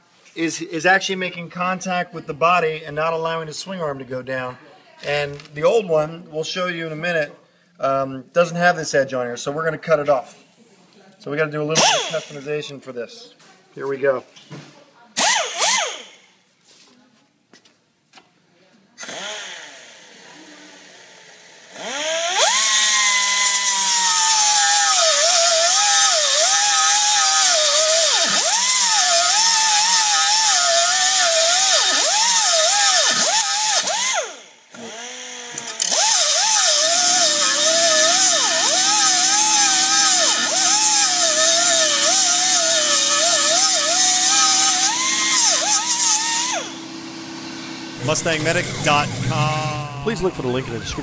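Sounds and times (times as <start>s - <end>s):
pneumatic cut-off wheel whining: 11.8s - 12.5s, 15.2s - 16.3s, 19.0s - 51.0s
steady low hum: 46.6s - 51.0s.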